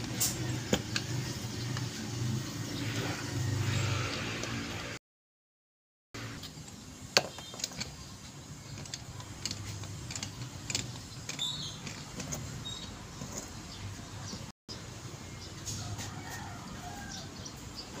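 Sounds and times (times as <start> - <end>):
screwdriver clicking on metal: 8.7 - 13.5.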